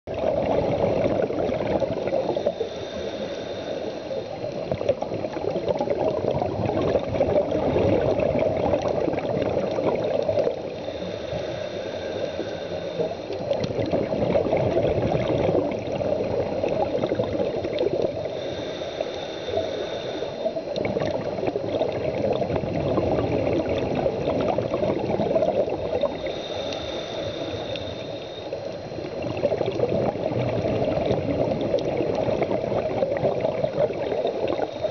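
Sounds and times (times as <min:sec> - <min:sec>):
gurgling exhaled bubbles: 0:00.1 - 0:34.9
regulator hissing inhale: 0:02.0 - 0:04.7, 0:10.4 - 0:13.7, 0:18.1 - 0:20.9, 0:25.7 - 0:29.2.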